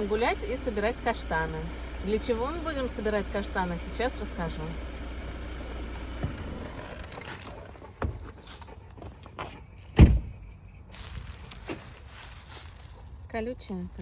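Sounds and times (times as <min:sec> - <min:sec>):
car engine rumble: 0:00.0 - 0:14.0
car door shutting: 0:06.0 - 0:08.4, 0:09.9 - 0:10.4.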